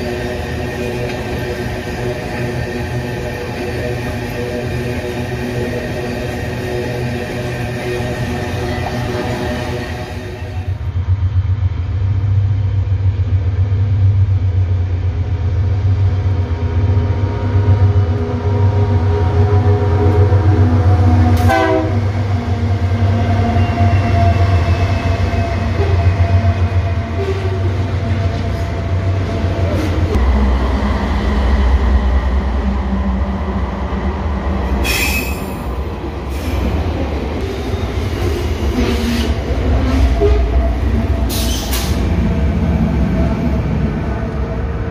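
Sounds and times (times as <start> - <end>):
diesel locomotive engines droning: 0.0 - 44.9
locomotive horn chord: 21.4 - 22.1
metallic wheel squeals: 34.8 - 35.6.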